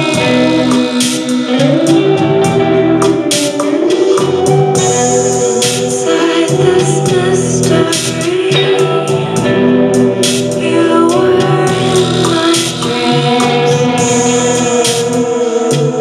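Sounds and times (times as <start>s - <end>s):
electric guitar: 0.0s - 16.0s
synthesizer chords: 0.0s - 16.0s
woman singing: 4.8s - 16.0s.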